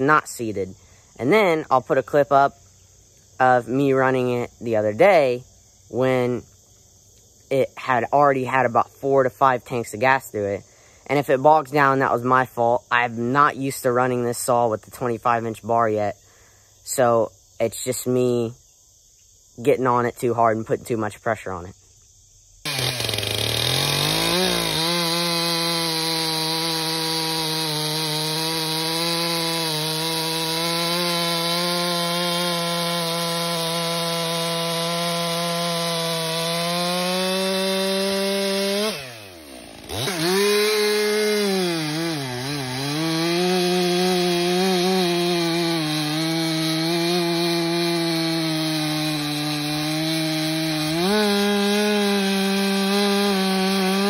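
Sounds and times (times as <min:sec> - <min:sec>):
chainsaw cutting logs: 0:22.6 - 0:54.0.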